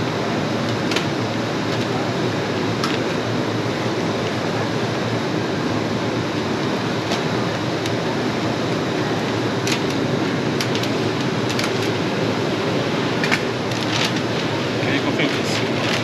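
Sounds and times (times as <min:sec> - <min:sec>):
steady rushing background noise: 0:00.0 - 0:16.0
sharp clicks and clatters: 0:09.6 - 0:10.0, 0:10.6 - 0:12.0.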